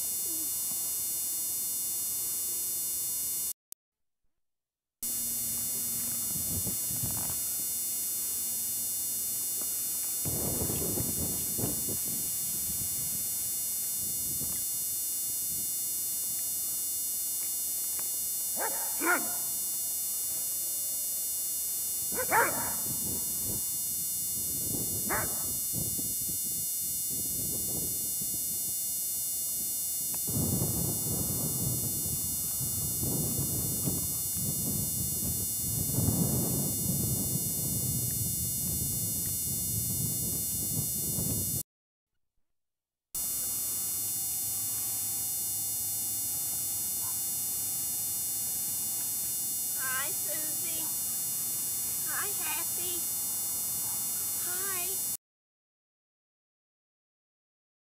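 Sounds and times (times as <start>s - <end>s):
faint high whine: 0.0s - 3.6s, 5.0s - 41.6s, 43.2s - 55.2s
tape hiss and electrical hum: 0.0s - 3.6s, 5.0s - 41.6s, 43.2s - 55.2s
dog barking: 18.6s - 19.6s, 22.1s - 23.0s, 25.1s - 25.6s, 47.0s - 47.3s, 53.8s - 54.1s.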